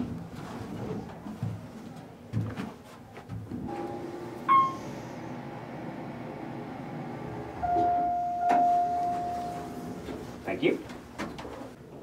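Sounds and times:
elevator ding: 0:03.7 - 0:05.1, 0:07.6 - 0:10.0.

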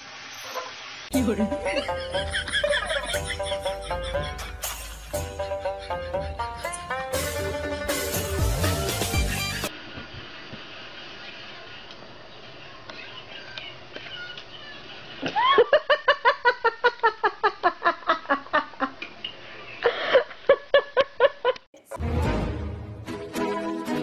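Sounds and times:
music with deep bass: 0:01.1 - 0:09.7
high-pitched laughter: 0:01.6 - 0:08.1, 0:15.2 - 0:18.9.

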